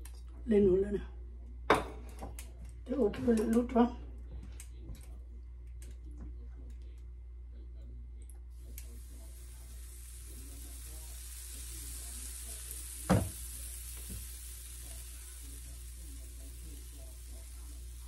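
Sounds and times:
batter sizzling in waffle iron: 8.6s - 18.0s.

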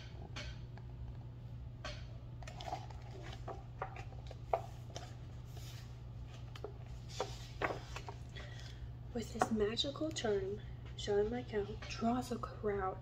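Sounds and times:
steady low hum: 0.0s - 13.0s
book pages rustling: 2.4s - 8.8s.

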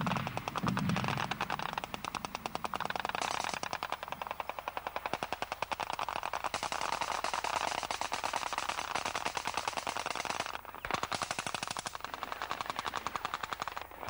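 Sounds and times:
machine gun automatic fire: 0.0s - 14.0s.

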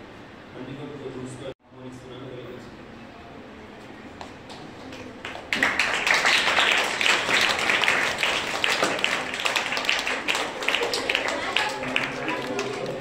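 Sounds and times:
crowd clapping: 4.5s - 13.0s.

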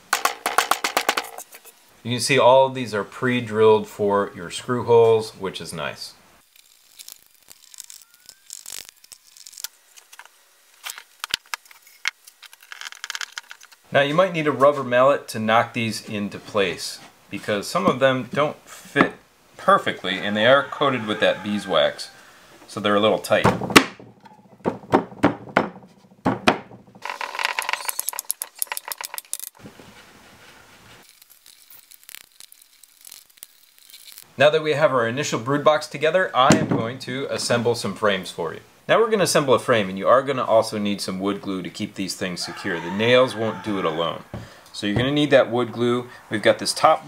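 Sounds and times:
sharp knock on wood: 23.4s - 26.9s
screw scraping into wood: 27.0s - 29.6s.

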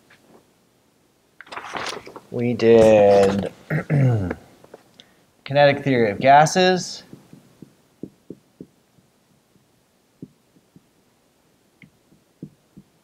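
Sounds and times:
marker tapping on whiteboard: 7.1s - 8.7s, 10.2s - 10.9s, 11.8s - 12.9s.

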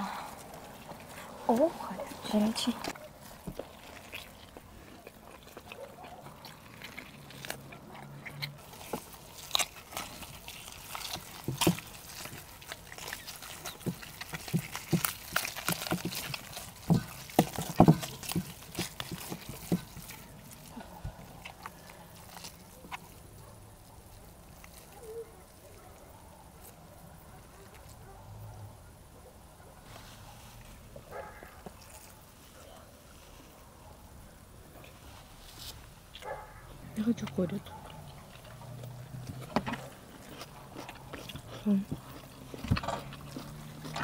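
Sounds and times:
wet chewing and lip smacking: 0.0s - 28.3s, 30.2s - 34.0s, 35.9s - 44.0s
chicken being torn apart: 2.9s - 25.6s, 37.9s - 44.0s.

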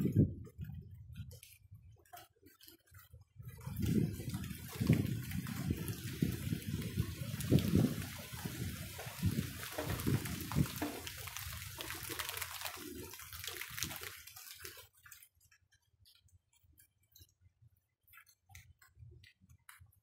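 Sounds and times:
water splashing: 3.6s - 15.2s
rain falling: 3.7s - 14.9s.

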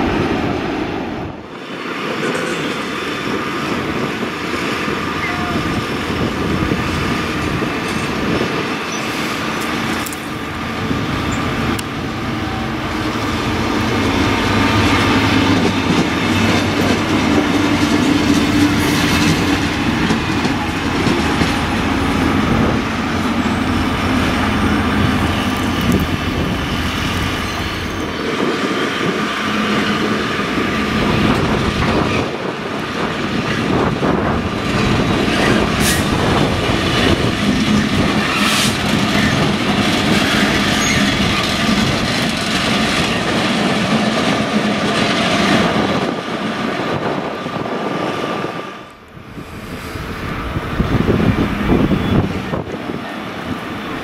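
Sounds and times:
diesel locomotive engines running: 0.0s - 54.0s
wheels clacking over rail joints: 6.6s - 47.0s.

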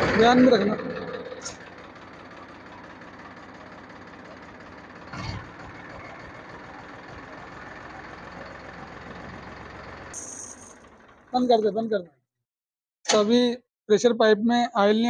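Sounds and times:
tractor diesel engine idling: 0.0s - 12.0s.

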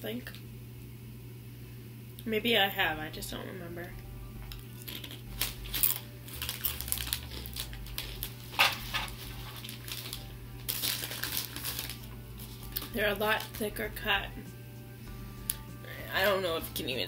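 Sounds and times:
potato chips crunching: 4.5s - 13.7s
chip bag rustling: 4.8s - 13.7s.

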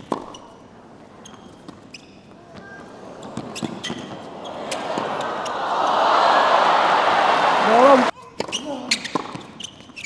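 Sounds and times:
ball bouncing: 0.0s - 0.4s
shoe squeaks: 0.0s - 0.6s, 1.2s - 4.8s, 8.3s - 10.0s
crowd noise: 2.4s - 8.2s.

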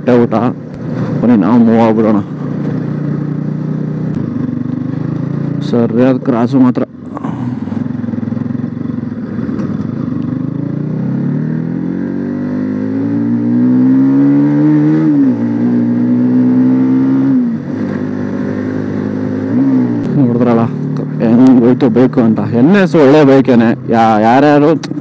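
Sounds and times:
motorcycle engine accelerating: 0.0s - 25.0s.

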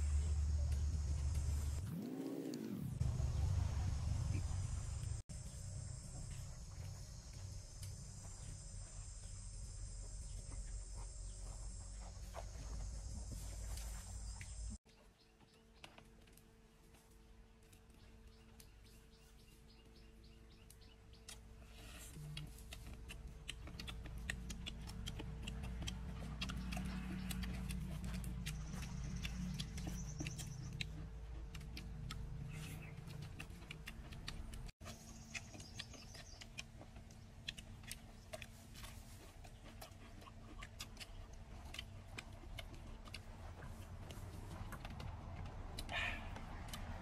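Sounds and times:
low rumble: 0.0s - 14.8s
chewing and smacking: 20.5s - 47.0s.

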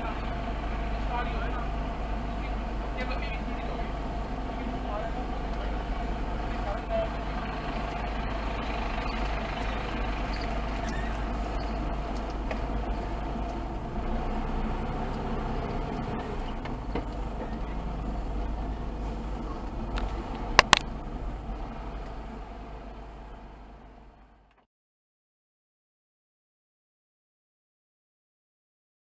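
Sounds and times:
car engine and road rumble: 0.0s - 24.6s
sharp clicks: 19.9s - 20.9s.

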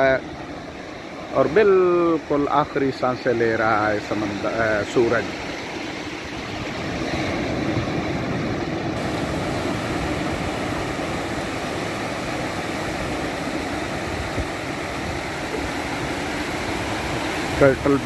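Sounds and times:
small waves breaking on sand: 0.0s - 18.0s.

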